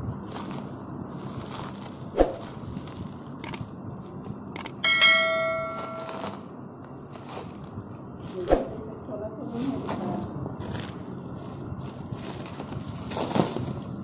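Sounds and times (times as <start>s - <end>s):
short clicks: 3.4s - 3.6s, 4.6s - 4.8s
bell chime: 4.8s - 6.4s.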